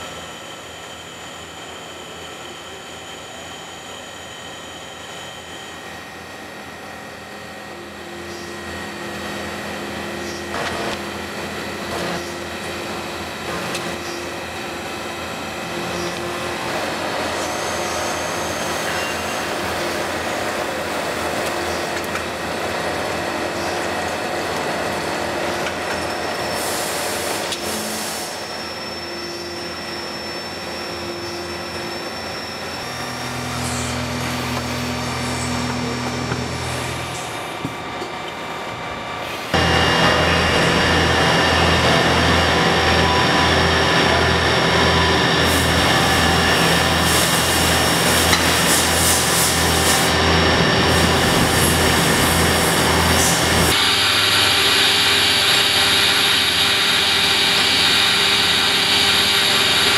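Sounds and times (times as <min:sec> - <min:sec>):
machine hum and whine: 0:00.0 - 0:59.9
hiss of cutting and coolant: 0:26.5 - 0:28.6, 0:45.4 - 0:59.9.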